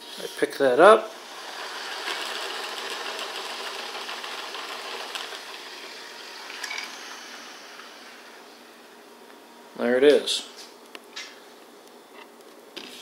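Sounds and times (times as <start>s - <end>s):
paddle wheel mechanical whirr: 1.1s - 8.9s.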